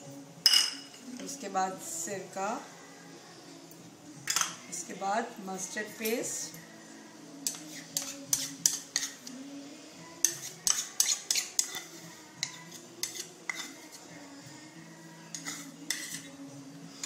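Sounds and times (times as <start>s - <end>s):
spoon clinking on ceramic bowls: 0.4s - 1.0s, 4.3s - 4.6s.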